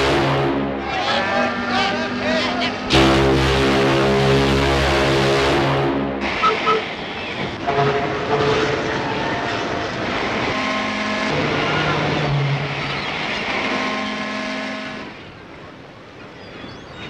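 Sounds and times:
ship steam whistles: 6.2s - 7.0s, 13.6s - 15.2s.

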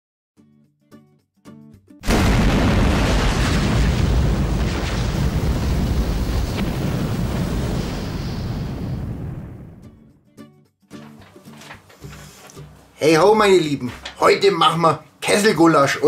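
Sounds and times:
explosion blast: 2.0s - 10.0s
rushing rumble of flames: 2.1s - 9.9s.

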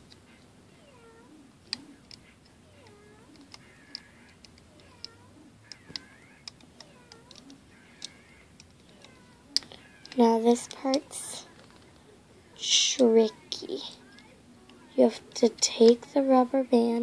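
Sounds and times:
rubber bands clicking and snapping: 1.6s - 12.0s.

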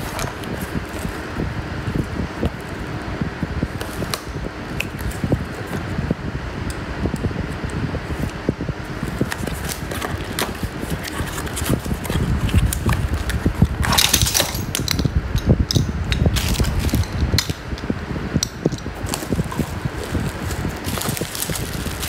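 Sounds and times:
cardboard and plastic wrapping rustling: 0.0s - 2.8s, 9.0s - 15.0s, 16.2s - 17.4s, 18.8s - 22.0s
low steady rumble: 0.0s - 22.0s
metal hooks clinking: 13.8s - 15.8s.

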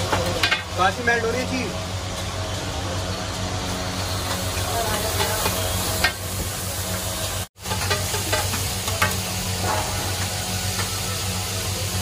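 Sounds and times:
burgers sizzling on griddle: 0.0s - 12.0s
metal spatula taps and scrapes: 7.7s - 9.2s.

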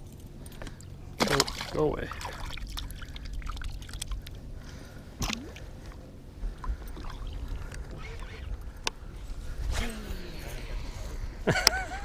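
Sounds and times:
boat engine low rumble: 0.0s - 12.0s
water against hull: 1.2s - 10.0s.

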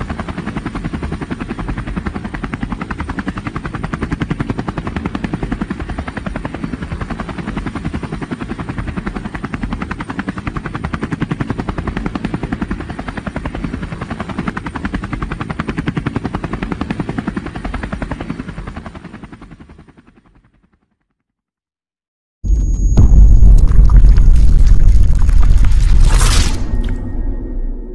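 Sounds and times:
helicopter rotor chopping: 0.0s - 20.5s.

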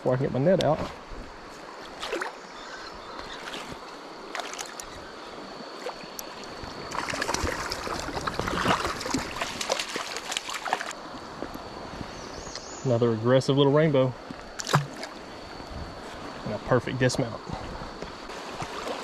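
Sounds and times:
stream water running: 0.0s - 19.0s
water splashing: 1.8s - 2.5s, 3.2s - 11.0s, 14.5s - 15.2s, 18.3s - 19.0s.

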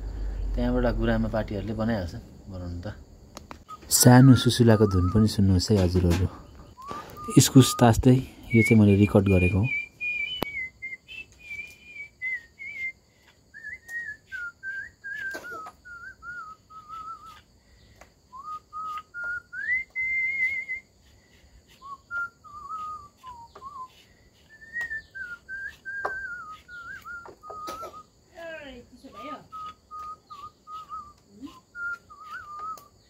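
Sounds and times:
man whistling a slow tune: 3.7s - 5.4s, 6.7s - 17.4s, 18.3s - 20.9s, 21.7s - 28.1s, 29.2s - 33.0s.

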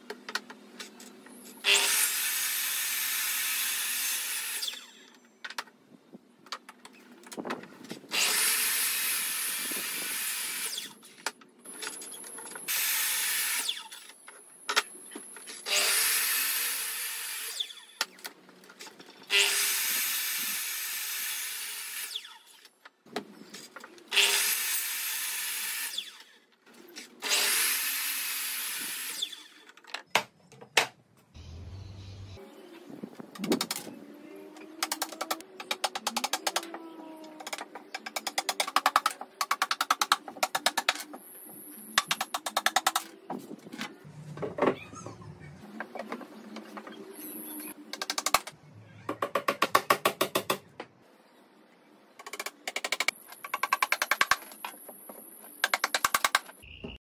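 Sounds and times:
electric mitre saw cutting wood: 1.6s - 5.1s, 15.7s - 17.9s, 24.1s - 26.4s, 27.2s - 29.6s.

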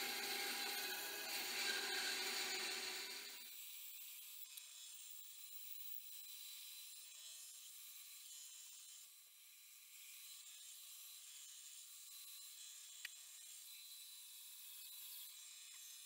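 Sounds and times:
bandsaw cutting metal: 0.0s - 3.4s.

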